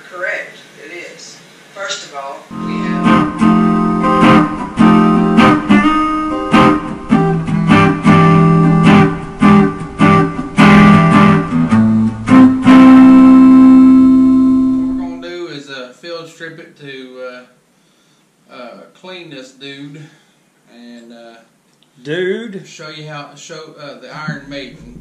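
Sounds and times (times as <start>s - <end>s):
guitar strumming chords: 2.5s - 15.2s.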